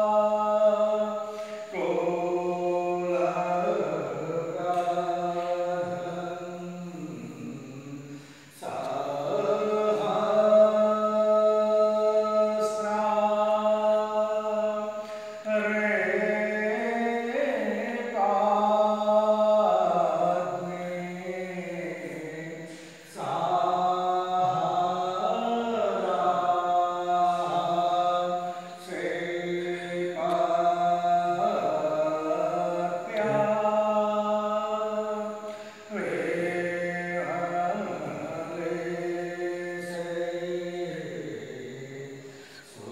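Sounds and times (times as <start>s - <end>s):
person chanting devotional song: 0.0s - 42.9s.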